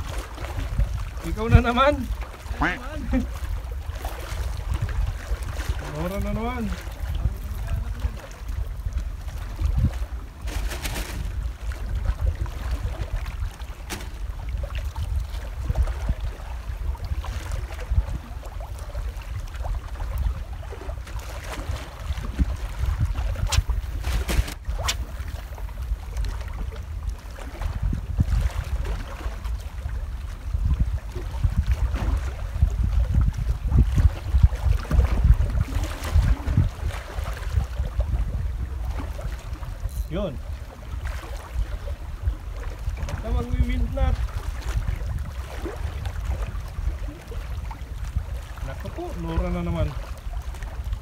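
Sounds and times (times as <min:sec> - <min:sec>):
faint sea water wash: 0:00.0 - 0:51.0
wind buffeting microphone: 0:00.0 - 0:51.0.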